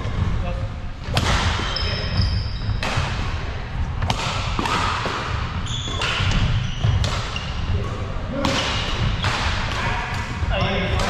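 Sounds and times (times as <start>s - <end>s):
rackets striking shuttlecock: 4.0s - 7.5s
shoes squeaking on wooden floor: 5.6s - 7.7s.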